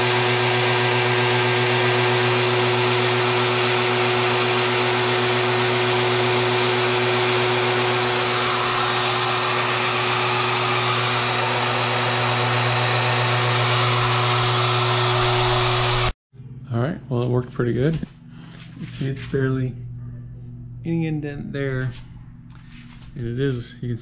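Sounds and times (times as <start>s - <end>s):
router whining: 0.0s - 16.2s.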